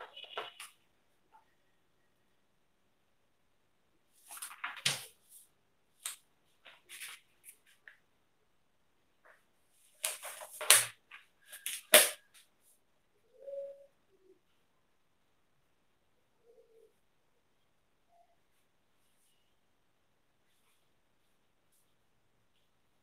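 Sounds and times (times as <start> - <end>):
paper rustling and crackling: 4.2 - 5.2, 6.0 - 8.0, 9.9 - 12.2.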